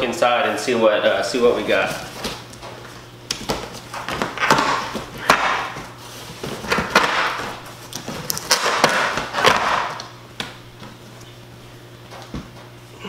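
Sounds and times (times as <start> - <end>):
cardboard flaps scraping: 1.6 - 10.0
packing tape tearing: 6.4 - 10.2.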